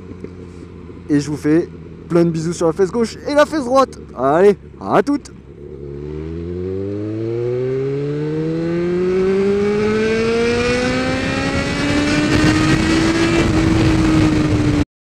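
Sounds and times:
motorcycle engine accelerating: 0.0s - 14.8s
wind rush: 9.0s - 14.8s.

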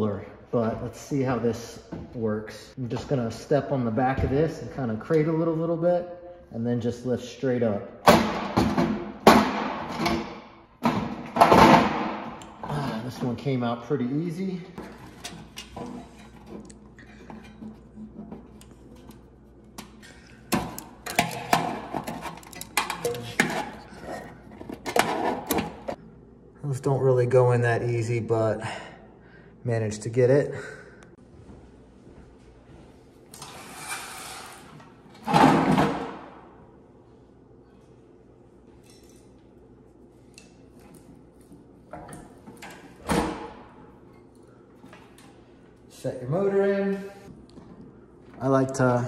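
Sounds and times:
metal clinking and scraping: 14.8s - 19.2s, 20.0s - 26.0s.

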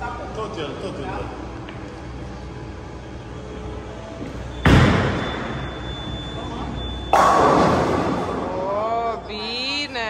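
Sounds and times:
bowling ball crashing into pins: 7.1s - 8.5s.

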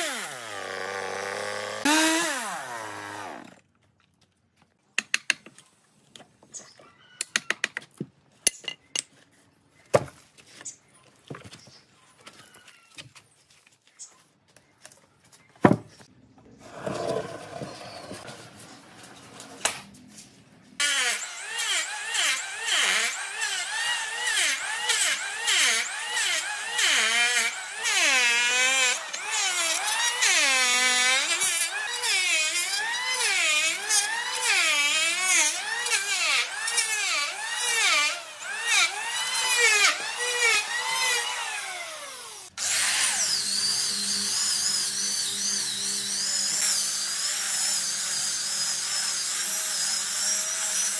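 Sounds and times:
angle grinder sanding: 20.9s - 50.9s.

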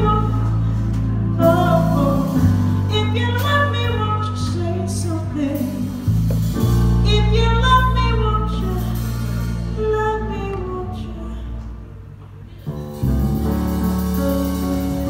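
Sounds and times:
woman singing: 0.0s - 6.1s, 7.0s - 11.8s
live band playing soul ballad: 0.0s - 11.8s, 12.5s - 15.0s
electric bass low notes: 0.0s - 15.0s.

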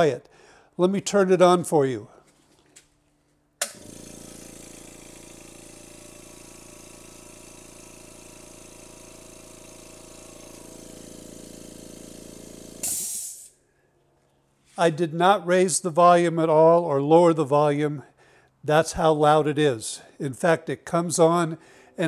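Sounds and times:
air compressor humming: 3.6s - 13.6s.

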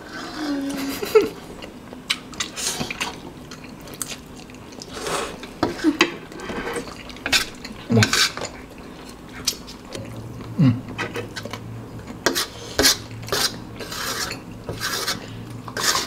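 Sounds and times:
chewing and slurping: 1.4s - 16.0s
utensils scraping metal tray: 12.2s - 16.0s.

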